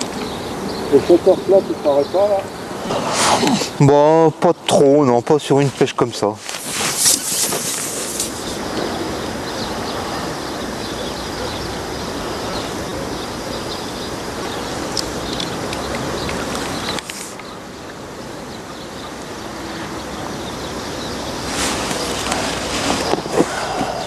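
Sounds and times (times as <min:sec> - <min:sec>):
wind buffeting microphone: 0:06.7 - 0:24.0
faint bird chirps: 0:07.0 - 0:24.0.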